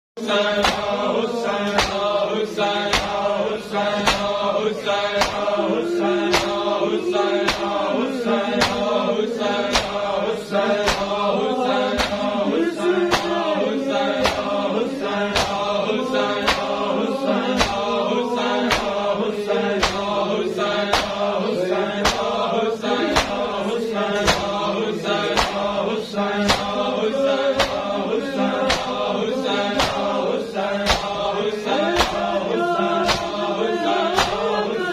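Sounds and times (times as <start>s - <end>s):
men chanting: 0.2s - 34.9s
chest beating slaps: 0.5s - 1.0s, 1.6s - 5.6s, 6.2s - 6.8s, 7.4s - 7.9s, 8.6s - 9.0s, 9.6s - 10.2s, 10.8s - 11.3s, 11.9s - 13.5s, 14.1s - 16.9s, 17.5s - 19.1s, 19.7s - 21.4s, 22.0s - 22.4s, 23.0s - 25.8s, 26.4s - 26.9s, 27.5s - 28.0s, 28.6s - 29.1s, 29.7s - 30.2s, 30.8s - 32.4s, 33.0s - 34.5s.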